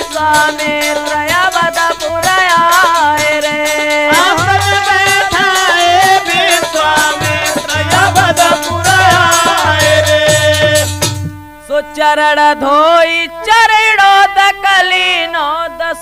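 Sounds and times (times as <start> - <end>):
jingling rattling percussion: 0.0 - 11.4
folk song melody: 0.0 - 16.0
hand drum playing: 2.2 - 11.5.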